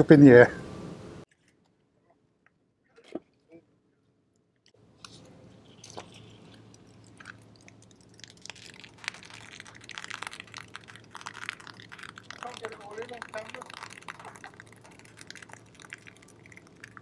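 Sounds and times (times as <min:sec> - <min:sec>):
foam fizzing: 0:05.7 - 0:17.0
crackling spattering clicks: 0:05.8 - 0:17.0.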